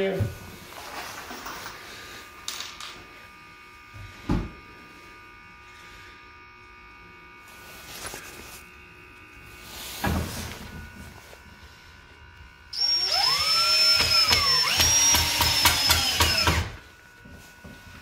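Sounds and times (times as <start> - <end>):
faint electrical hum: 0.0 - 18.0
soft rustle: 7.4 - 8.8.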